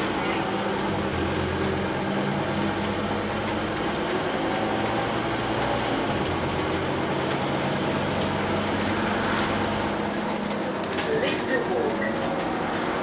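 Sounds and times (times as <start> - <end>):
bus diesel engine hum: 0.0 - 13.0
road and body noise: 3.8 - 13.0.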